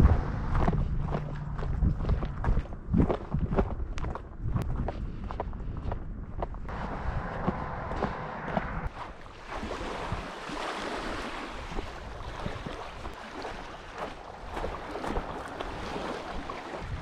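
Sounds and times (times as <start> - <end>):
footsteps crunching on gravel: 0.2 - 8.9
small waves lapping: 8.9 - 17.0.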